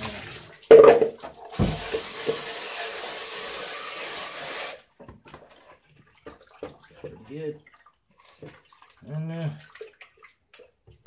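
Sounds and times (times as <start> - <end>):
water running into a plastic bucket: 0.0 - 11.0
thump: 1.6 - 2.4.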